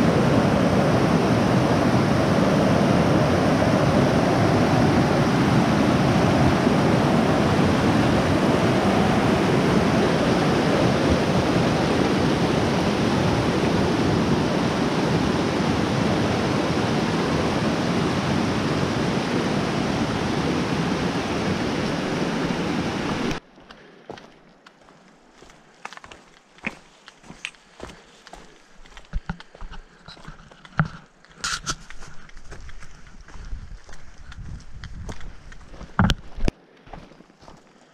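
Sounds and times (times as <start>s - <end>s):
creek rushing over rocks: 0.0s - 23.4s.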